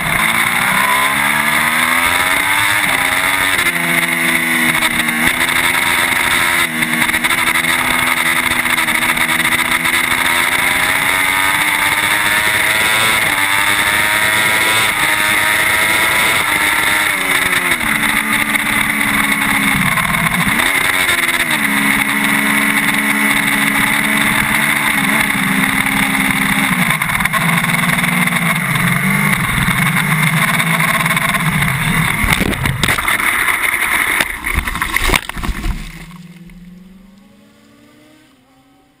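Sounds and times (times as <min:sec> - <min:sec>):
motorcycle engine running: 0:00.0 - 0:38.4
wind noise on microphone: 0:31.4 - 0:33.1
faint rising whine: 0:31.4 - 0:39.0
motorcycle crashing into undergrowth: 0:32.2 - 0:36.5.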